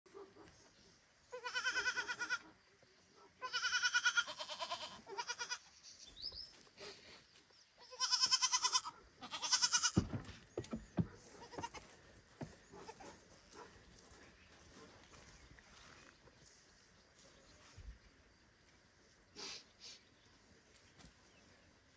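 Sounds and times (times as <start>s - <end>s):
baby goat bleating: 1.4s - 2.4s, 3.4s - 5.7s, 7.8s - 10.0s.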